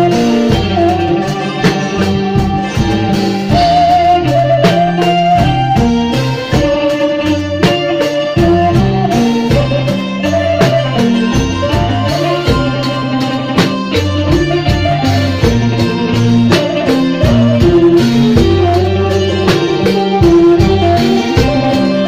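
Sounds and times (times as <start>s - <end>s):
drum kit beat: 0.0s - 22.0s
electric bass: 0.0s - 22.0s
electric guitars: 0.0s - 22.0s.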